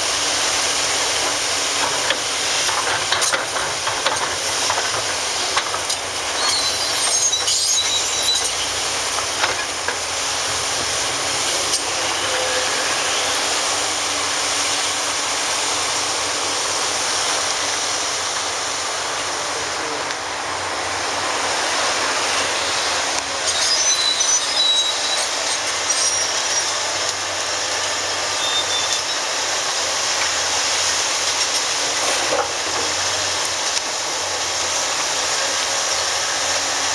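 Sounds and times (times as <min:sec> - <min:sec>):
excavator engine and hydraulics: 0:00.0 - 0:36.9
high metallic squeals: 0:06.3 - 0:08.8, 0:11.7 - 0:13.5, 0:23.4 - 0:27.0, 0:28.2 - 0:29.4.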